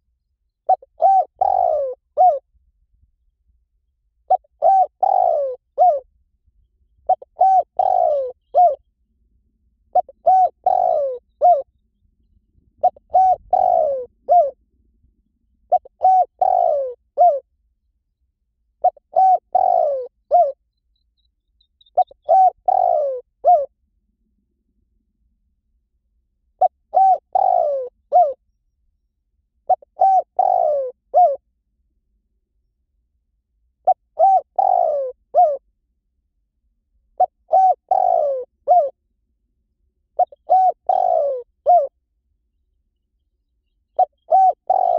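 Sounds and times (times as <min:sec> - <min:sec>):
dove cooing: 0:00.7 - 0:02.4, 0:04.3 - 0:06.0, 0:07.0 - 0:08.8, 0:09.9 - 0:11.7, 0:12.7 - 0:14.6, 0:15.7 - 0:17.5, 0:18.8 - 0:20.6, 0:21.8 - 0:23.7, 0:26.6 - 0:28.4, 0:29.7 - 0:31.4, 0:33.8 - 0:35.6, 0:37.2 - 0:39.0, 0:40.2 - 0:41.9, 0:43.9 - 0:44.9.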